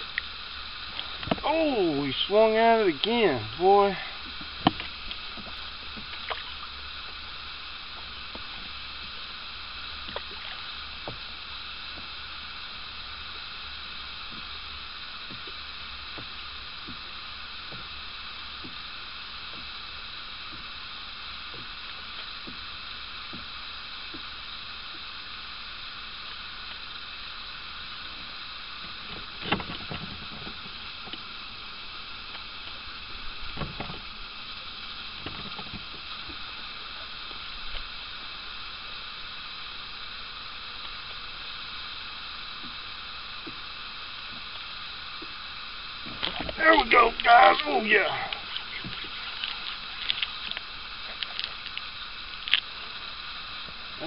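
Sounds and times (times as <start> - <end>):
boat hum and hiss: 0.0 - 54.0
faint clicks: 48.3 - 52.8.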